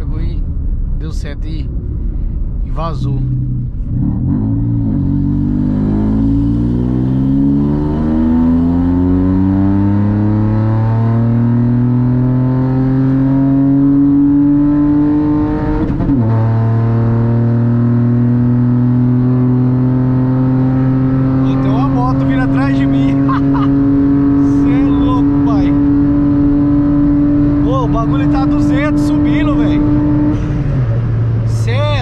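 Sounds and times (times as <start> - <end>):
car engine under full throttle: 0.0 - 32.0.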